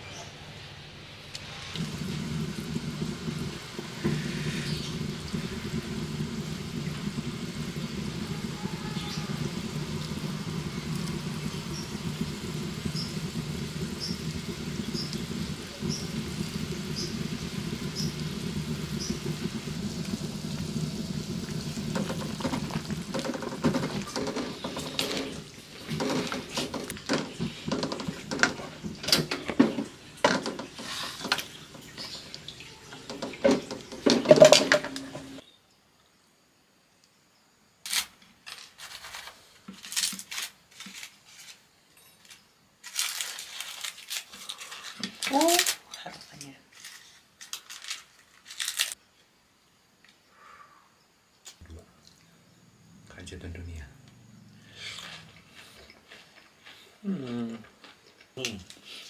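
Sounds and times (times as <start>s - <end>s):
wooden spatula stirring soup in wok: 9.4s - 32.4s.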